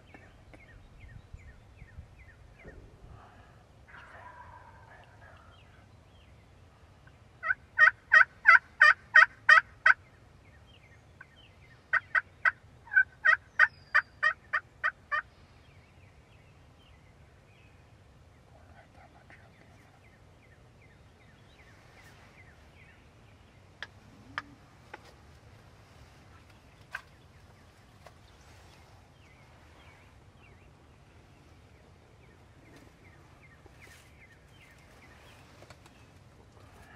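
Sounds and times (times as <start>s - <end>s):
wild turkey yelping: 3.9s - 5.8s, 7.4s - 10.0s, 11.9s - 15.3s.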